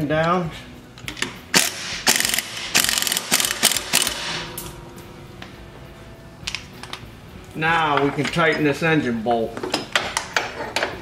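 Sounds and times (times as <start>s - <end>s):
metal ratcheting clicks: 1.0s - 4.2s
sharp metal clanks: 1.5s - 5.7s.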